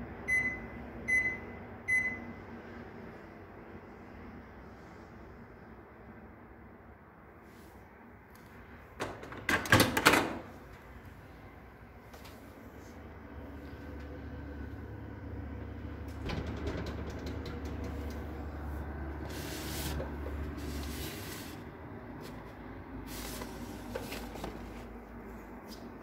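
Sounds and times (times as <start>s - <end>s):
microwave oven humming: 0.0s - 6.8s, 9.0s - 26.0s.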